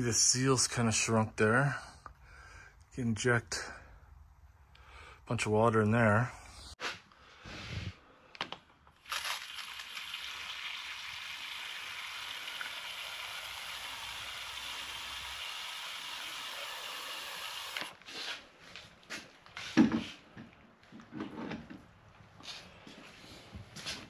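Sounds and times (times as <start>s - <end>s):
sprayer nozzle hissing: 12.0s - 17.9s.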